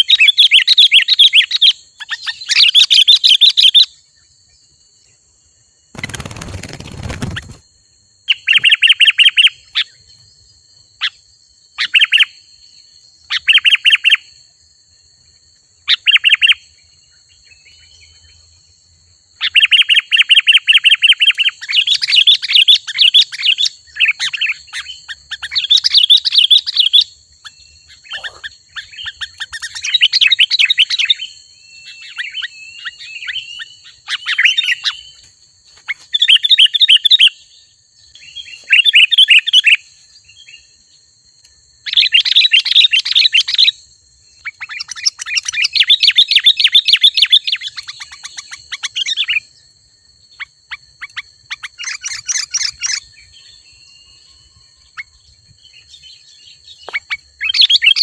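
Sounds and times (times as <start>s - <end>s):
bird chattering song: 0.0s - 4.0s, 5.9s - 7.6s, 8.3s - 10.3s, 11.8s - 12.4s, 13.2s - 14.3s, 15.9s - 16.6s, 19.4s - 35.2s, 41.8s - 49.5s, 50.3s - 58.0s.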